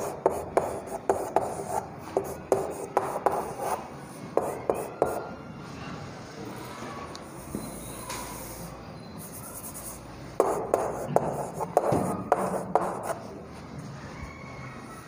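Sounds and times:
chalk writing on blackboard: 0:00.0 - 0:05.4, 0:07.2 - 0:13.4.

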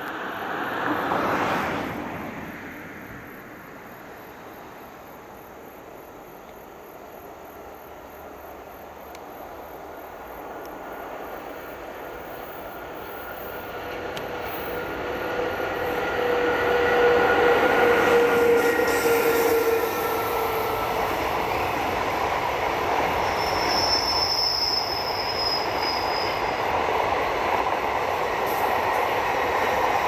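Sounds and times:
train wheels rumbling on rail: 0:07.8 - 0:30.0
locomotive whine: 0:09.8 - 0:30.0.

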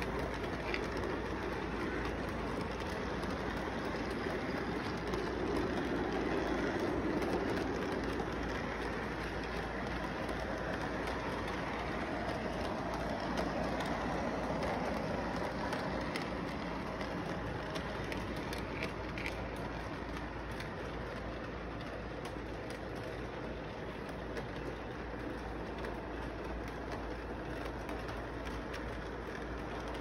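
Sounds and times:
faint track clicks: 0:00.0 - 0:30.0
model train rumbling: 0:00.0 - 0:30.0.

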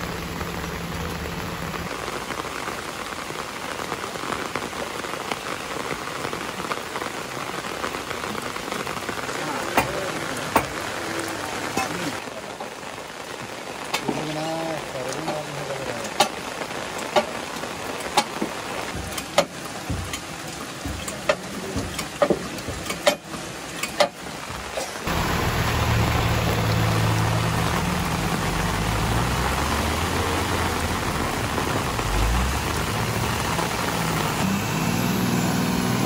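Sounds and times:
lorry diesel engine running: 0:00.0 - 0:02.2, 0:25.1 - 0:36.0
heavy rain: 0:00.0 - 0:36.0
large raindrops splatting: 0:00.0 - 0:36.0.

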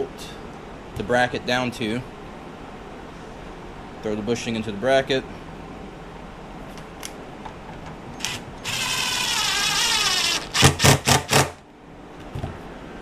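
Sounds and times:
cordless driver driving screw: 0:08.2 - 0:11.6.

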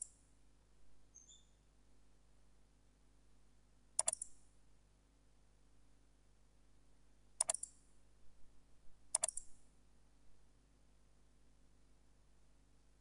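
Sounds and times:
mouse button clicks: 0:04.0 - 0:04.3, 0:07.4 - 0:07.8, 0:09.1 - 0:09.5
faint ticks: 0:04.0 - 0:04.4, 0:07.4 - 0:07.8, 0:09.1 - 0:09.6.

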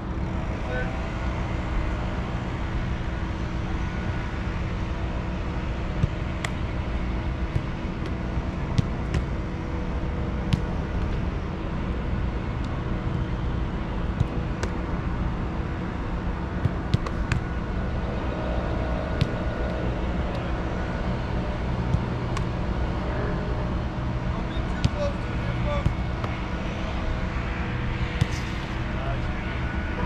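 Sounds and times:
steady low rumble: 0:00.0 - 0:30.0
soccer balls kicked thudding: 0:05.9 - 0:09.4, 0:10.4 - 0:11.2, 0:14.1 - 0:14.8, 0:16.5 - 0:17.6, 0:18.8 - 0:20.5, 0:24.8 - 0:26.5, 0:28.2 - 0:28.5.

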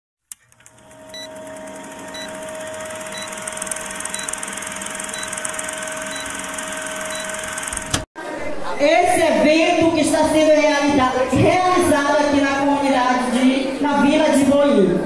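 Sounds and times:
film projector whirring: 0:00.3 - 0:08.1.

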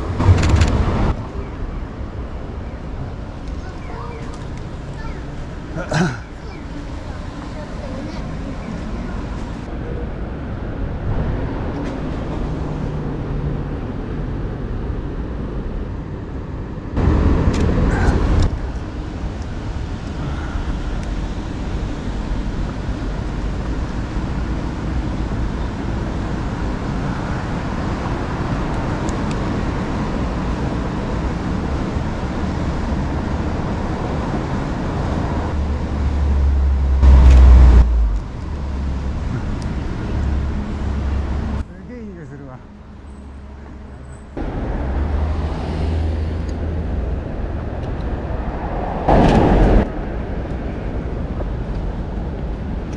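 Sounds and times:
cars passing: 0:00.0 - 0:52.9
low traffic rumble: 0:00.0 - 0:52.9.

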